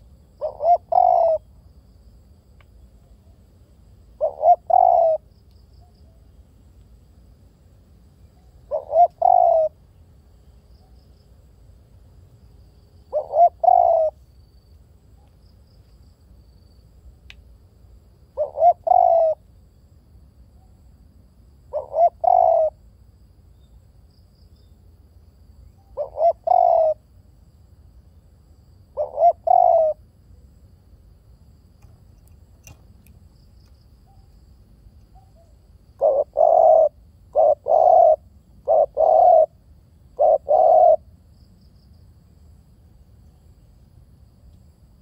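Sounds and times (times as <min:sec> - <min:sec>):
dove cooing: 0:00.0 - 0:01.5, 0:04.2 - 0:05.3, 0:08.7 - 0:09.8, 0:13.1 - 0:14.2, 0:18.4 - 0:19.4, 0:21.7 - 0:22.8, 0:25.9 - 0:27.0, 0:29.0 - 0:30.0, 0:35.1 - 0:41.1.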